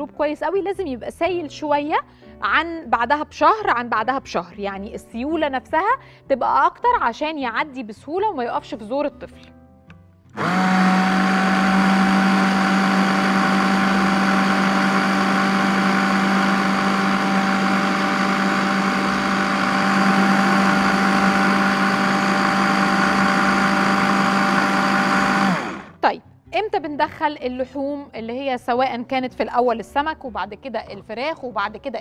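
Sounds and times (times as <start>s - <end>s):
hand blender running: 10.4s - 26.0s.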